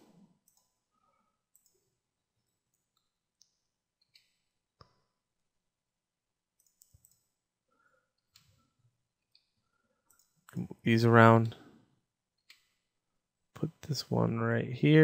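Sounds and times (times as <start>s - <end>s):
mouse clicks: 6.6s - 7.3s.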